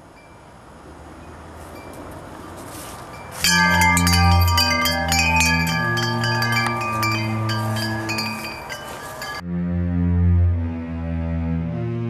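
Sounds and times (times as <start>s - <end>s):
chiming bell-like music: 3.4s - 9.4s.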